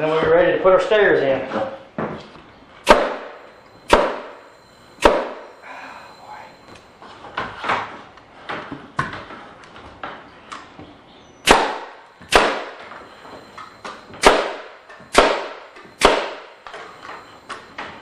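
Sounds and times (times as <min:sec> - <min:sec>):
nail gun shots into wood: 0:02.8 - 0:04.3, 0:05.0 - 0:05.4, 0:11.4 - 0:12.8, 0:14.2 - 0:16.5.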